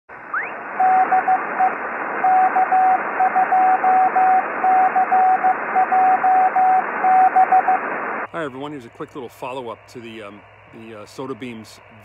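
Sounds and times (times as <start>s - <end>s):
radio static hiss: 0.1s - 12.0s.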